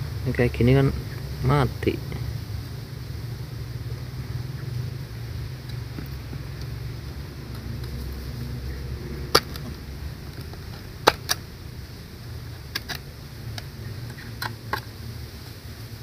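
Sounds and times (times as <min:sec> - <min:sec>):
steady low rumble: 0:00.0 - 0:16.0
knife clicks and knocks on bamboo: 0:09.3 - 0:11.5, 0:12.7 - 0:14.9.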